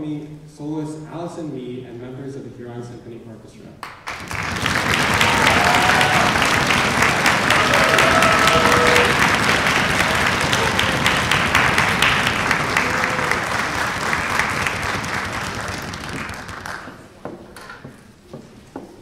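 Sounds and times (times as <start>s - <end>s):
audience applauding: 3.8s - 17.2s.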